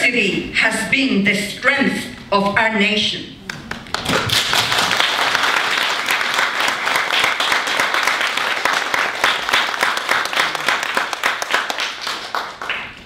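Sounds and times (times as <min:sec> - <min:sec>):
audience applauding: 0:03.5 - 0:13.0.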